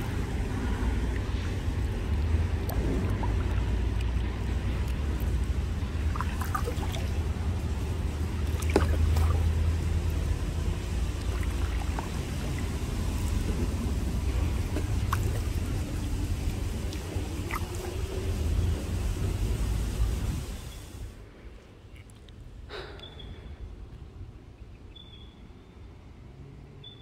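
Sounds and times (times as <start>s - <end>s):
paddle splashing and dripping: 0.0s - 21.2s
steady low rumble: 0.0s - 24.9s.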